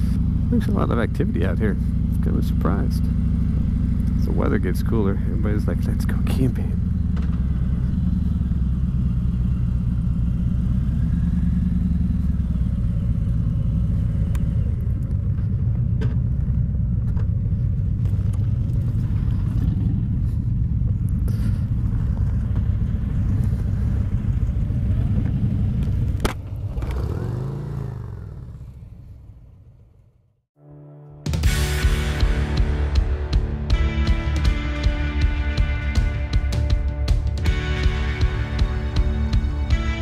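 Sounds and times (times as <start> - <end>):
motorcycle engine idling: 0.0 - 30.1.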